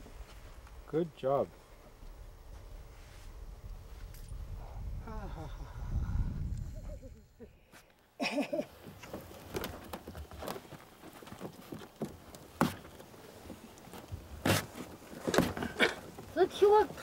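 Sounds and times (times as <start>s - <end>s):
light crackles and taps on bark: 8.8s - 17.0s.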